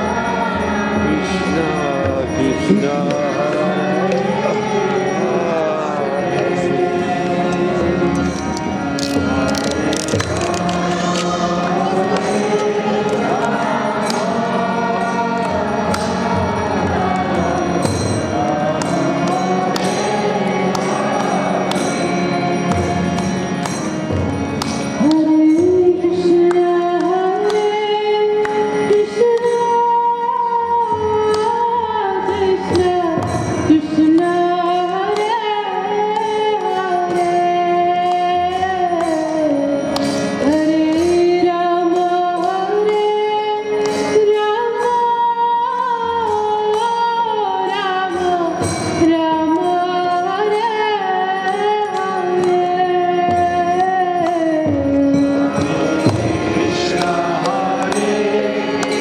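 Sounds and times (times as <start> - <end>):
group of voices singing: 0.0 - 59.0
regular clicking beat: 7.2 - 29.6.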